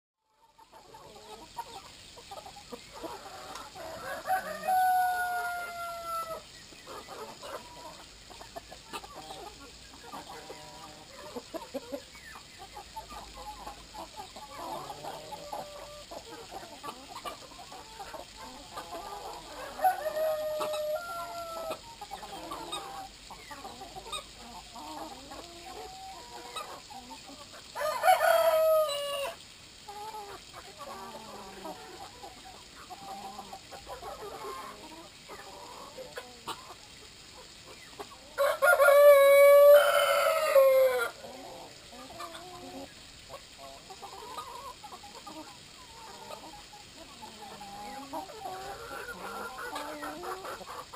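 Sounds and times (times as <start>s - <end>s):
chickens clucking: 0.3s - 50.9s
rooster crowing: 3.9s - 6.4s, 19.6s - 21.8s, 27.8s - 29.4s, 38.4s - 41.2s.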